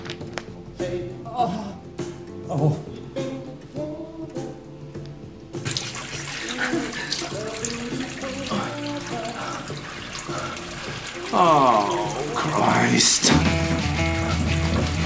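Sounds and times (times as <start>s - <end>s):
background music: 0.0s - 15.0s
tap running into sink: 5.7s - 12.6s, 13.2s - 15.0s.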